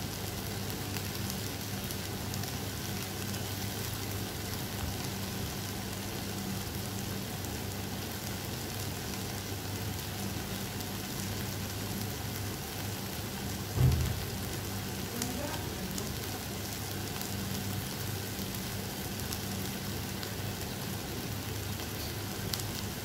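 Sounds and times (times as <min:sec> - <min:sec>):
vegetables sizzling in a pan: 0:00.0 - 0:23.0
low thump: 0:13.8 - 0:14.4.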